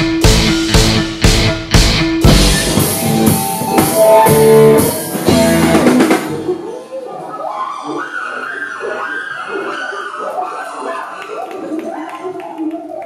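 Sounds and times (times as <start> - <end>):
rock band playing loudly: 0.0 - 6.6
voices: 6.3 - 13.0.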